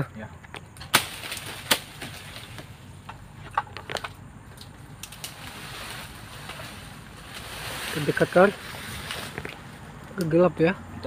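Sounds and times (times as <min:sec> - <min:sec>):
footsteps rustling through grass: 0:05.0 - 0:10.0.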